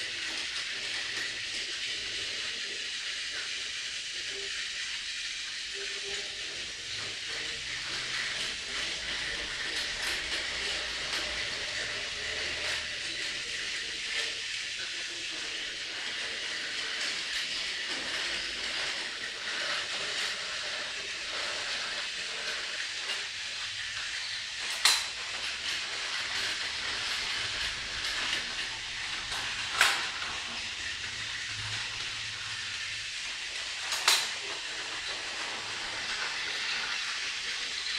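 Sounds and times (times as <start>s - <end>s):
toy train motors whirring: 0.0s - 37.9s
sharp clacks: 33.9s - 34.5s.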